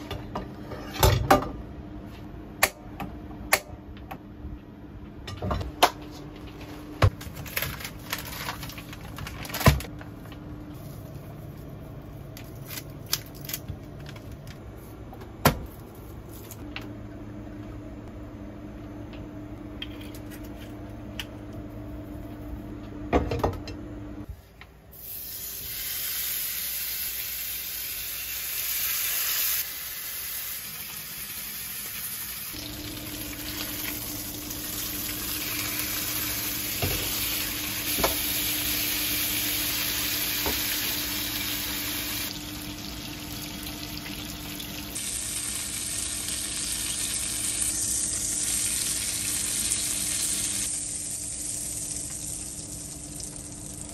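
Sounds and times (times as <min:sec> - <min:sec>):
steady low hum: 0:00.0 - 0:25.0
steaks sizzling in pan: 0:25.7 - 0:42.9, 0:45.0 - 0:53.3.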